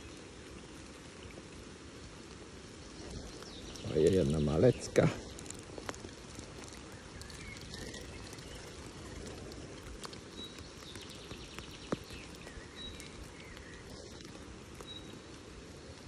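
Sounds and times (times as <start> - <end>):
faint bird chirps: 6.6 - 16.0.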